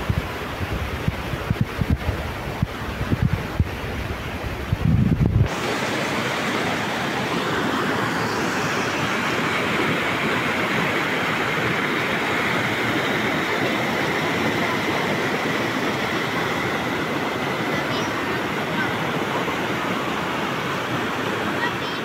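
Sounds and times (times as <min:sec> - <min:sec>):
wind buffeting microphone: 0:00.0 - 0:06.0
flowing water rushing: 0:00.0 - 0:22.0.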